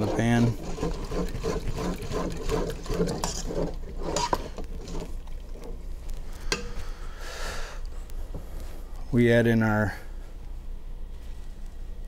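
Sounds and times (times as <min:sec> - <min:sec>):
spoon scraping pot bottom: 0:00.0 - 0:05.7.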